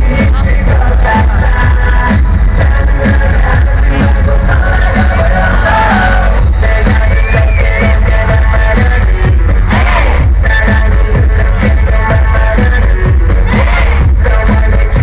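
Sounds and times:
heavy bass beat: 0.0 - 15.0
loud live pop music: 0.0 - 15.0
person singing: 0.0 - 15.0.

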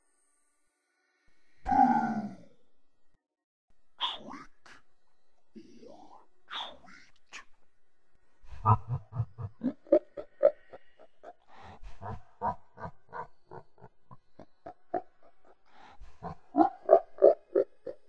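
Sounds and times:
creature grunting: 1.7 - 2.5, 5.6 - 7.1, 8.5 - 18.0.

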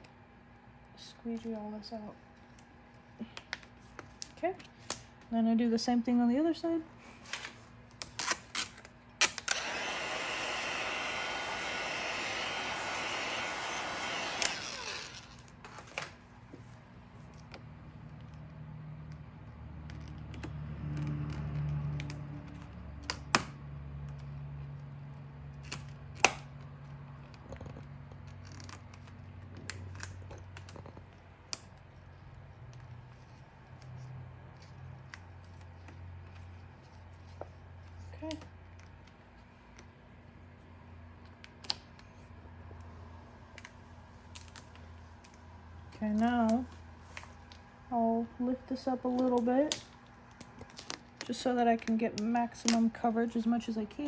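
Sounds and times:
heat gun blowing: 9.2 - 15.5.

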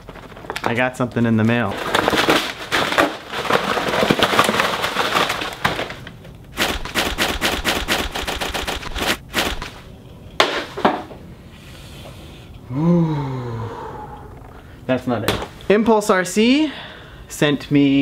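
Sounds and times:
paper and plastic wrapping tearing: 1.5 - 9.8.

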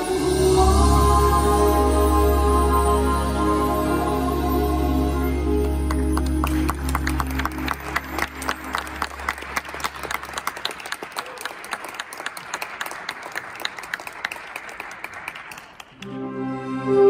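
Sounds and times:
music: 0.0 - 10.4, 16.0 - 17.0
audience applause: 5.6 - 16.1.

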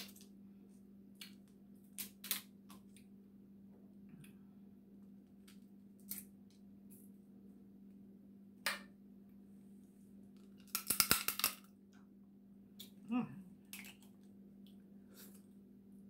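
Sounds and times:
low steady hum: 0.0 - 16.0
crab shells cracking: 1.2 - 2.8, 10.5 - 11.7, 13.7 - 14.2.

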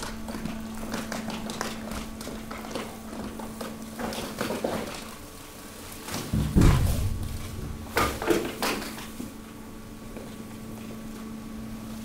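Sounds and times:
waste crackling and clattering: 0.0 - 10.4
hydraulic compactor humming: 0.0 - 12.0
heavy low thud: 6.3 - 8.4.

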